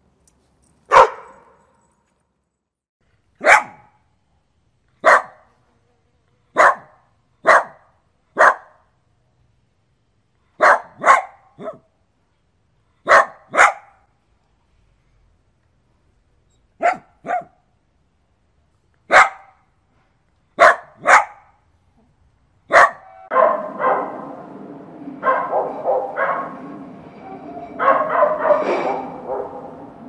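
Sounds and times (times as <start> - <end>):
dog barking: 0.9 - 1.6, 3.4 - 4.0, 5.0 - 5.5, 6.6 - 8.8, 10.6 - 11.9, 13.0 - 14.0, 16.8 - 17.6, 19.1 - 19.6, 20.6 - 21.6, 22.7 - 24.3, 25.2 - 26.6, 27.8 - 29.8.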